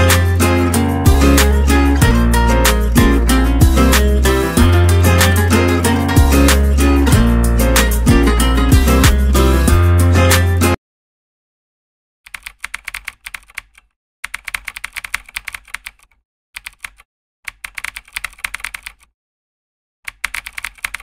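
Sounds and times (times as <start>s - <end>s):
guitar music: 0.0s - 10.8s
keyboard typing: 12.3s - 19.1s, 20.1s - 21.0s.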